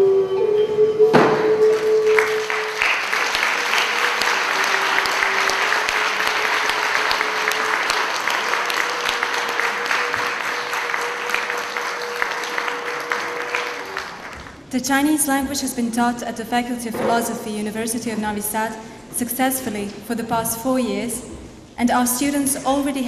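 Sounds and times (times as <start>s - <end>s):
held notes of instrumental music: 0.0s - 14.7s
audience applauding: 1.6s - 14.7s.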